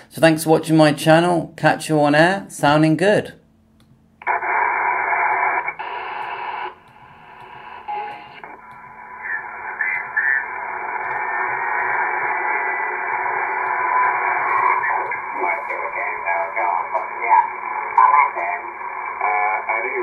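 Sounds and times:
radio static hiss: 4.2 - 20.0.

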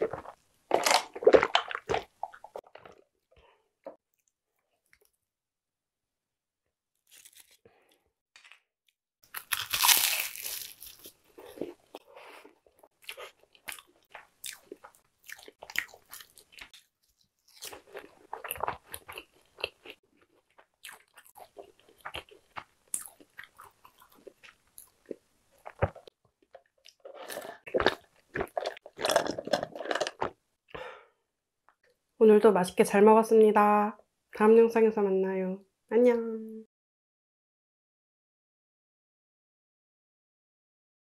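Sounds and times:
pastry crunching: 7.0 - 7.6, 9.2 - 11.8
wet chewing: 9.3 - 30.4.

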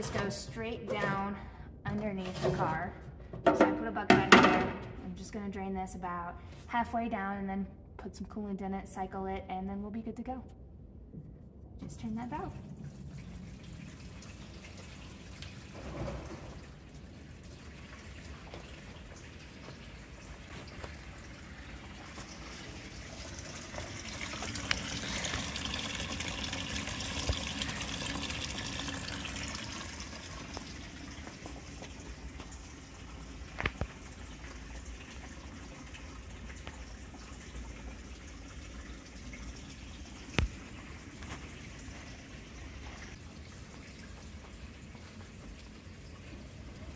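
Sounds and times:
water splashing into bucket: 12.5 - 32.7.

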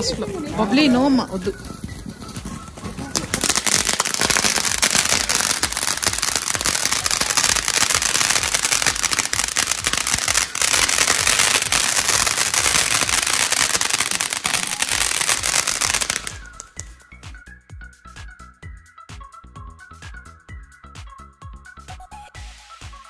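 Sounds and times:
firework hissing and crackling: 2.7 - 16.8, 22.4 - 23.0.

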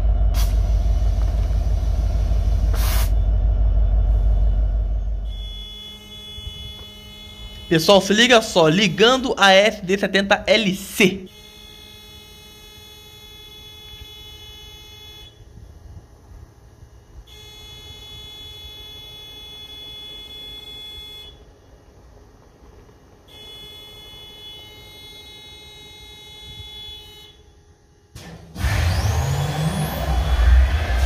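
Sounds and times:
low engine rumble: 0.0 - 11.3
high-pitched warning buzzer: 5.2 - 15.6, 17.1 - 21.6, 23.1 - 29.1.

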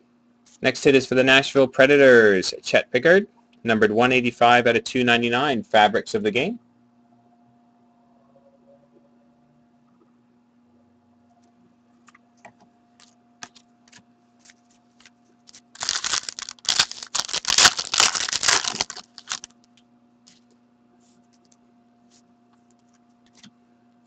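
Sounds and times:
foil wrapper crinkling: 15.0 - 19.7.

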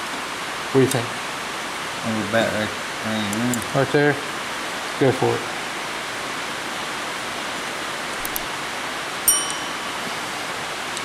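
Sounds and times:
rain on a tin roof: 0.0 - 9.3
metallic ping: 9.3 - 10.5.

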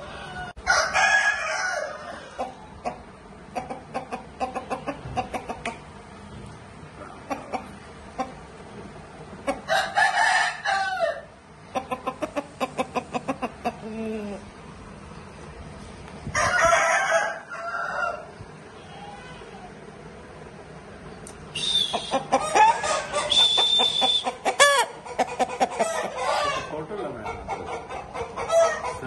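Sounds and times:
rooster crowing: 0.0 - 2.6, 9.7 - 11.4, 16.3 - 19.7, 21.8 - 24.9, 25.8 - 26.7
rooster clucking: 0.0 - 6.0, 7.0 - 8.7, 9.3 - 14.5, 21.6 - 29.0.

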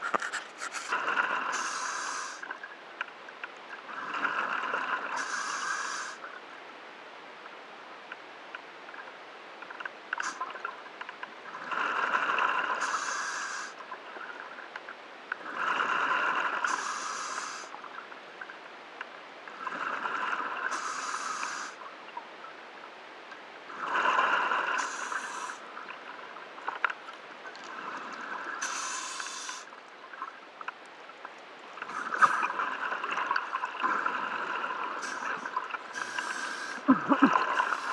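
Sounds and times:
diver breathing through regulator: 0.6 - 2.4, 5.2 - 6.2, 12.8 - 13.8, 15.7 - 17.7, 20.7 - 21.8, 23.8 - 25.6, 28.6 - 29.7, 35.0 - 37.9.

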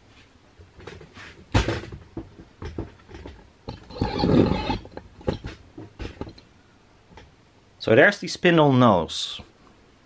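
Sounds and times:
scraping rustle: 3.2 - 6.4.

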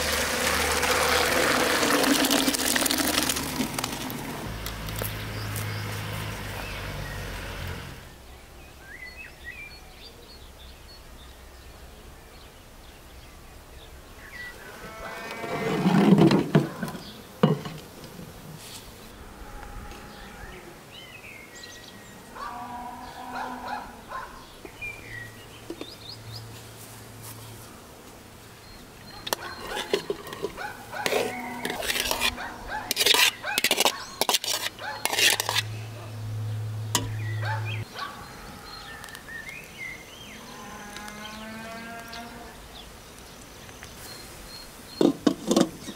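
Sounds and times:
small birds chirping: 4.5 - 15.5, 20.0 - 27.6, 28.4 - 45.9
farm animal calls: 14.5 - 15.9, 21.9 - 24.5, 29.0 - 36.2, 37.0 - 39.3, 40.3 - 42.7.

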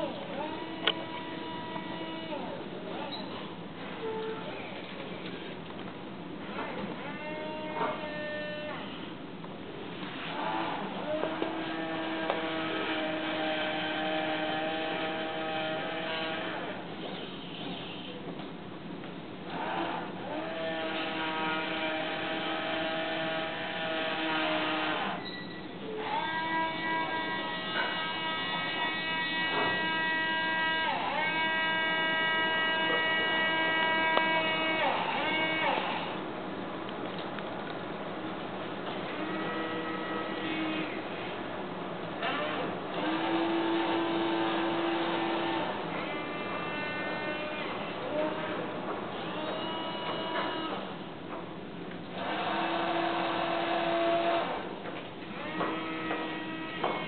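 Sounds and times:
servo motors whining: 0.0 - 3.4, 19.5 - 36.2, 49.2 - 50.9, 52.1 - 54.6.

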